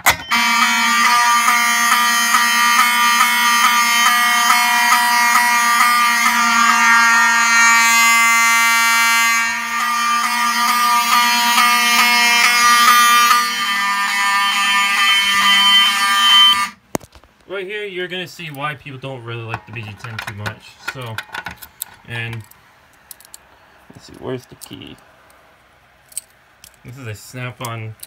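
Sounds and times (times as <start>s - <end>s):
loud electronic alarm horn tone: 0.0s - 16.8s.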